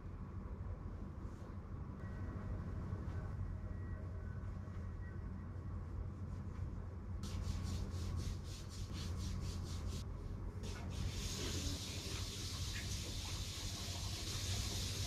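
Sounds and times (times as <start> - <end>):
steady low hum: 0.0 - 15.0
hands rubbing skin: 7.2 - 10.0
steady hiss: 7.2 - 10.0, 10.6 - 15.0.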